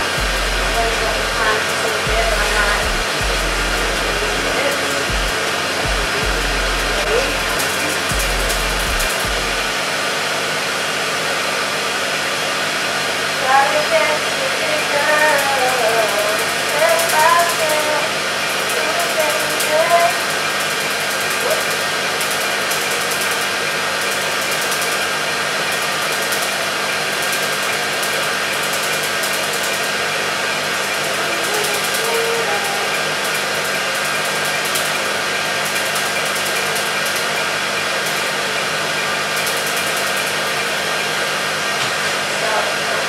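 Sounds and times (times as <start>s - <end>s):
blower hissing: 0.0s - 43.0s
faint rapid ticks: 25.7s - 30.0s, 32.9s - 37.4s, 39.4s - 40.7s.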